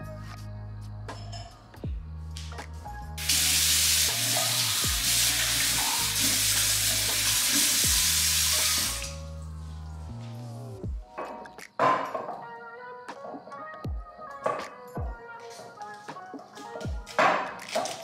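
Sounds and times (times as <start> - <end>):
tap water rushing into sink: 3.2 - 9.1.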